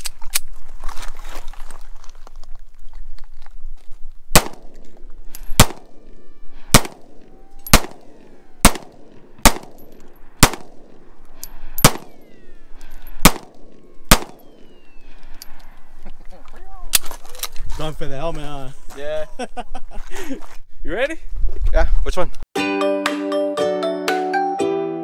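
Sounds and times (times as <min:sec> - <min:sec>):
pistol shots with echo: 0:04.4 - 0:04.8, 0:05.5 - 0:06.1, 0:06.7 - 0:11.0, 0:11.8 - 0:12.5, 0:13.2 - 0:15.0.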